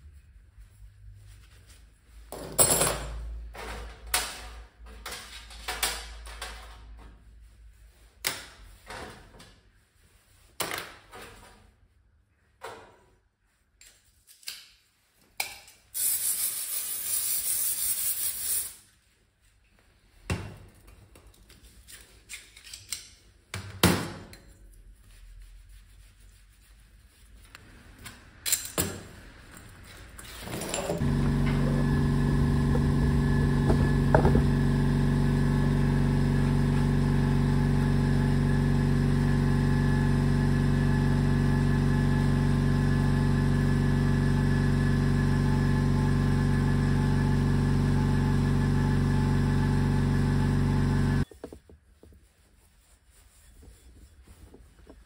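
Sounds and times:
motor humming: 30.9s - 51.2s
workshop clicks and knocks: 33.0s - 34.6s.

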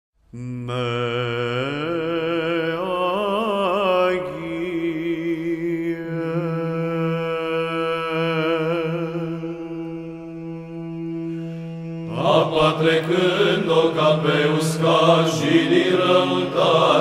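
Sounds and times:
choir chanting: 8.9s - 17.0s.

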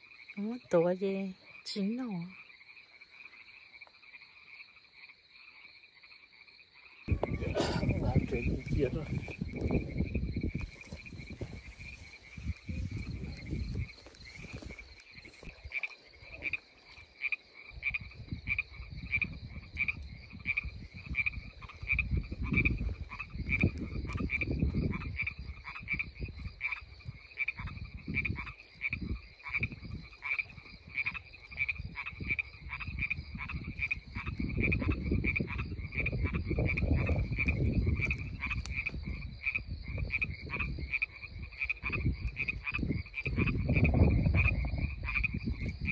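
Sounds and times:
frogs calling in pulses: 0.0s - 45.9s
low rumbling noise: 7.1s - 14.8s.

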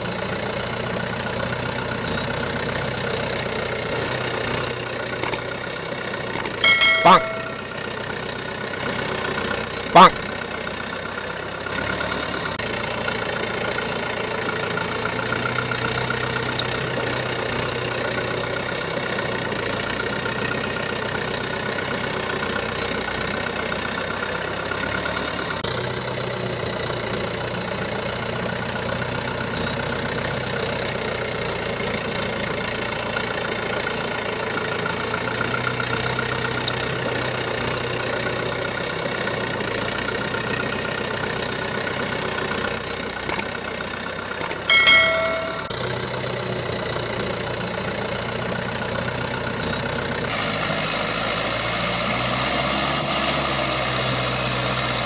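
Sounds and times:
tractor engine idling: 0.0s - 51.5s
clicks: 5.2s - 5.5s, 6.4s - 7.7s, 43.3s - 43.5s, 44.4s - 45.9s.

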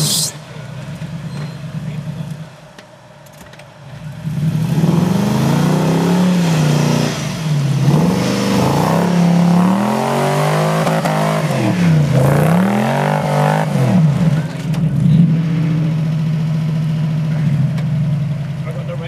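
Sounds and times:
truck engine revving hard: 4.2s - 14.5s.

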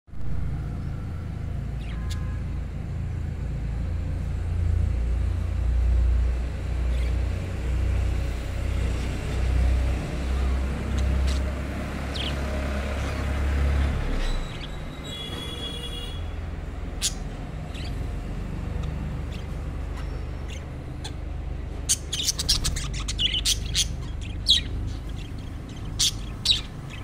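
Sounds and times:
budgerigars chirping: 1.8s - 2.4s, 10.3s - 13.4s, 16.8s - 27.0s.

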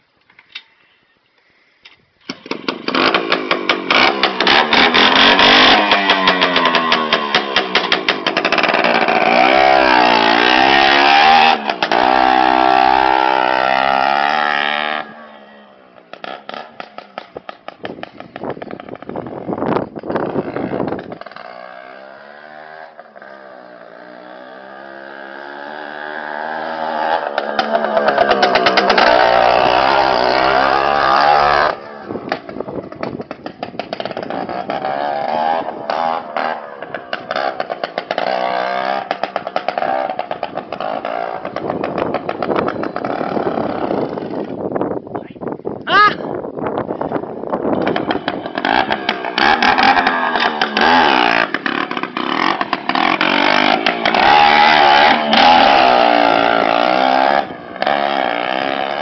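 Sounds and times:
two-stroke moped engine revving: 2.3s - 44.7s, 47.3s - 59.0s.

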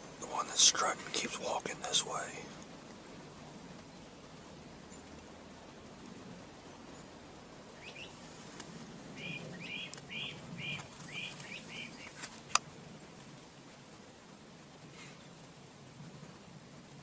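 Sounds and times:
bird chirping: 7.8s - 8.2s, 9.2s - 12.2s.

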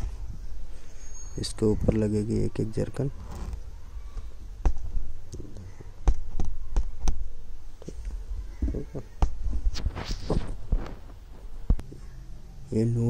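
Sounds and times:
thread rustling: 9.3s - 11.7s.

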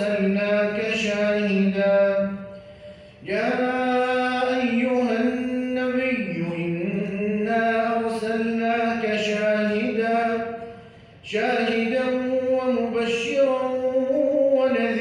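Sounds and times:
man chanting melodically: 0.0s - 15.0s
breath: 2.4s - 3.2s, 10.6s - 11.2s.

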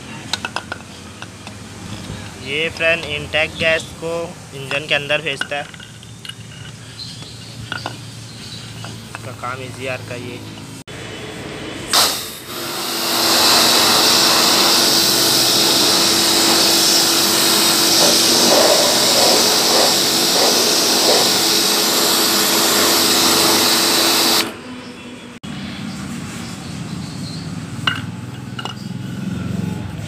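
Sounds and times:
steady hum: 10.9s - 24.6s
pressure washer spraying: 11.9s - 24.6s.

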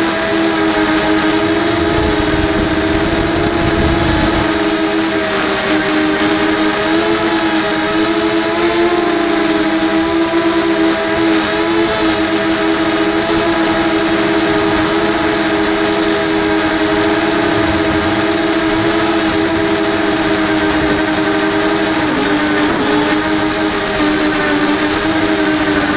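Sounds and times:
quadcopter motors whining: 0.0s - 25.9s
rushing air: 0.8s - 4.9s, 14.2s - 25.9s.

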